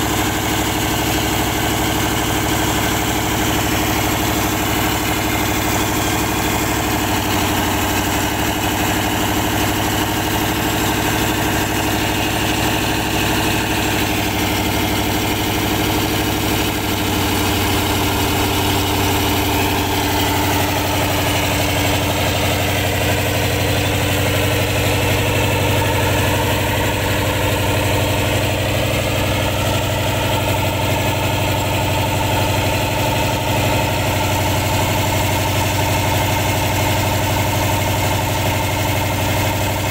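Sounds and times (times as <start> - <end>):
boat engine running under load: 0.0 - 39.9.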